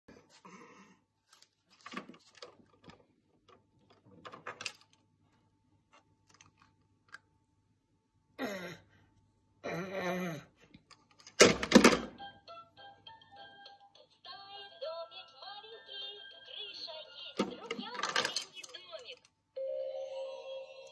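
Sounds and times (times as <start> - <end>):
musical toy starting up: 12.1 - 18.9, 19.6 - 20.9
plastic toy clicks and clatter: 17.4 - 19.3.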